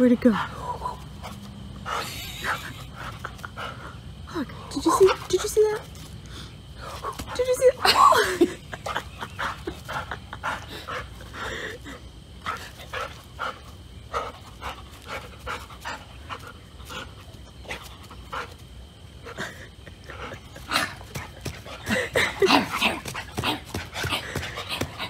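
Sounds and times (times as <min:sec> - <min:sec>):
dog panting: 0:00.2 - 0:25.0.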